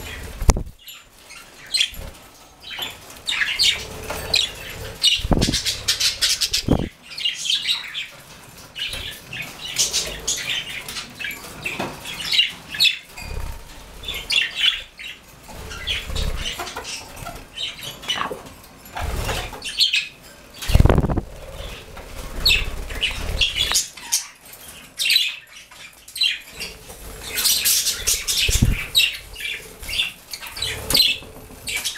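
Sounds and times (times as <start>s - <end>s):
wings flapping: 0.0s - 0.8s, 3.1s - 6.9s, 15.5s - 17.5s, 20.6s - 23.9s, 26.7s - 31.9s
budgerigars chirping and chattering: 0.0s - 31.9s.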